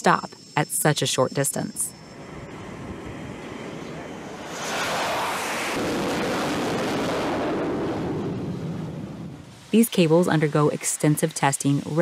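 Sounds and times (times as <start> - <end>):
aircraft engine rushing: 2.0 - 9.7.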